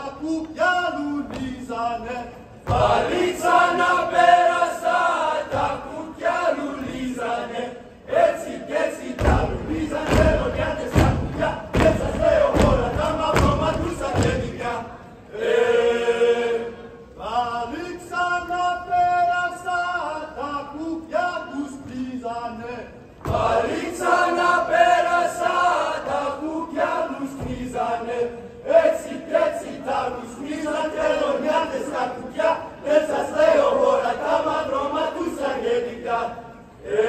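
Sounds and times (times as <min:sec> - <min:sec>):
men singing folk song: 0:00.6 - 0:14.9
heavy foot stamps on stage: 0:01.2 - 0:01.7, 0:02.6 - 0:03.3, 0:09.2 - 0:14.6, 0:23.2 - 0:23.8, 0:27.3 - 0:27.8.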